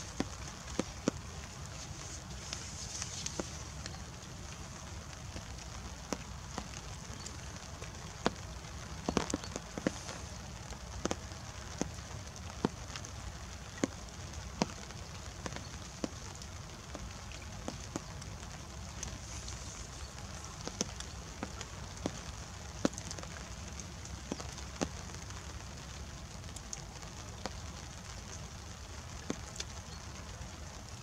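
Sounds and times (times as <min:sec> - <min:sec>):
drops ticking: 0:00.0 - 0:12.9
low outdoor rumble: 0:00.0 - 0:31.0.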